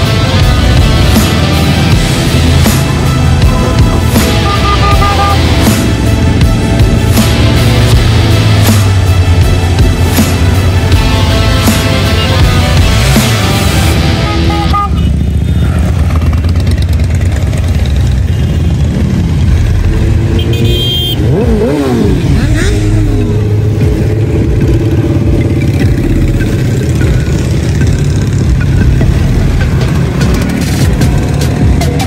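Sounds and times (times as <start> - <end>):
background music: 0.0 - 16.0, 19.1 - 32.0
motorcycle engine revving: 0.0 - 32.0.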